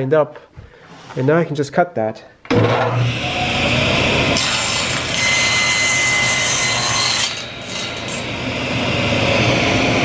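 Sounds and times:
table saw cutting wood: 0:02.5 - 0:10.0.

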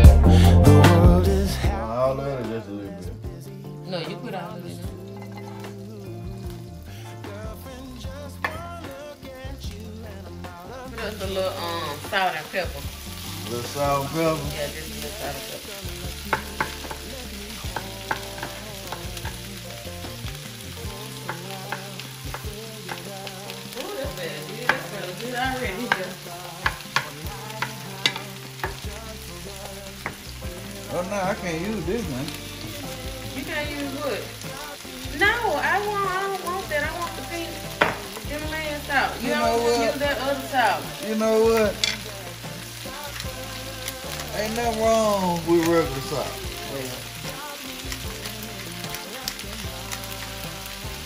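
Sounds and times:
food sizzling in a frying pan: 0:00.0 - 0:51.0.

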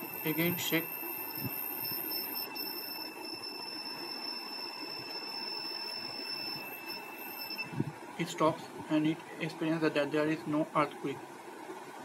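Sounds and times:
high-pitched buzzer tone: 0:00.0 - 0:07.9.

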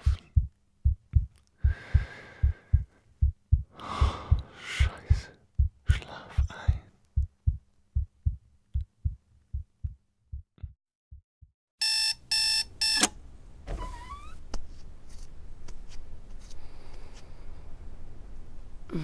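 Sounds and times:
low heartbeat thumping: 0:00.0 - 0:11.5
alarm clock beeping: 0:11.8 - 0:13.1.

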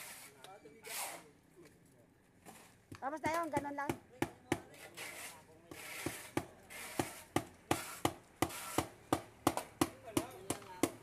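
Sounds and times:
rasping scrape: 0:00.0 - 0:01.3, 0:04.7 - 0:08.9
hammer striking wooden post: 0:03.2 - 0:04.8, 0:05.7 - 0:11.0.

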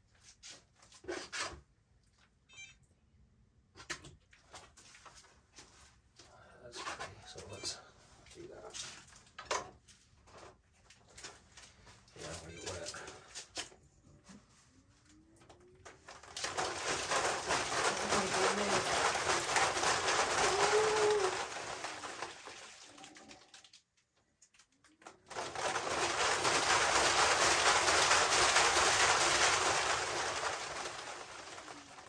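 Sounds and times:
spinning machine whirring: 0:16.1 - 0:22.5, 0:25.1 - 0:32.0.

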